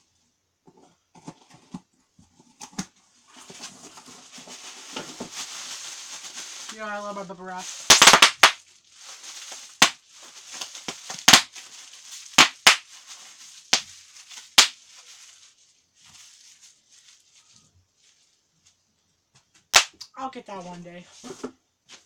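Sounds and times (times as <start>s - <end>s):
plastic crinkling: 2.6s - 18.8s
bubble wrap popping: 2.8s - 18.2s, 19.7s - 20.1s.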